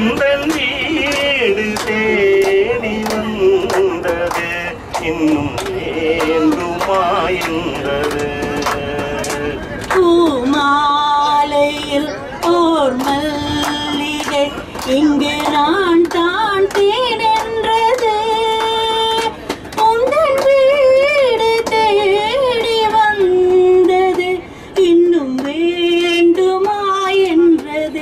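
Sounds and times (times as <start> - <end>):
woman singing into microphone: 9.9 - 28.0.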